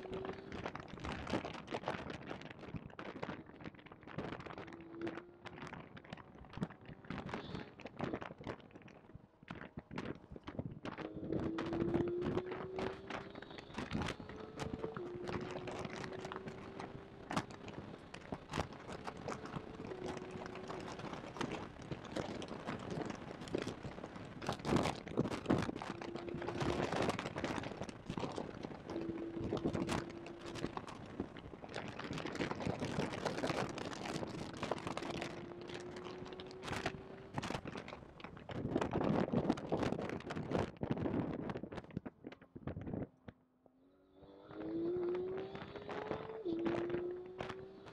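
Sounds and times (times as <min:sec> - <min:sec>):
crackling and knocking microphone noise: 0:00.0 - 0:43.7, 0:44.4 - 0:47.9
faint engine tone climbing in pitch: 0:43.8 - 0:47.9.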